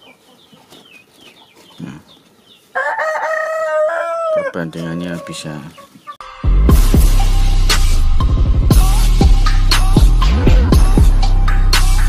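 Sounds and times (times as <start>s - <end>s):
rooster crowing: 2.7s - 5.6s.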